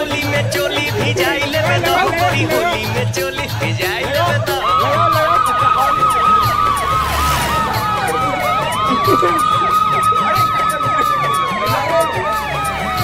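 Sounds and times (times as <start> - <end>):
low bass beat: 0.1 - 4.7, 6.2 - 13.0
siren wail: 4.5 - 13.0.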